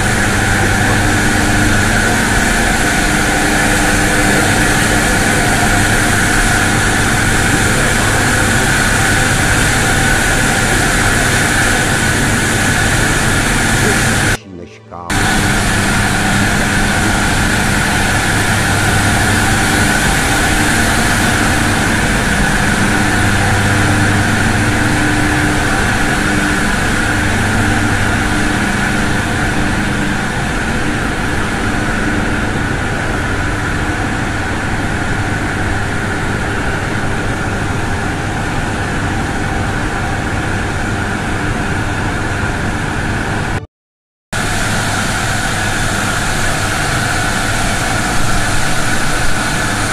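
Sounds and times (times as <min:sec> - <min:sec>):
turbine machinery humming: 0:00.0 - 0:14.4, 0:15.1 - 0:43.6, 0:44.4 - 0:49.9.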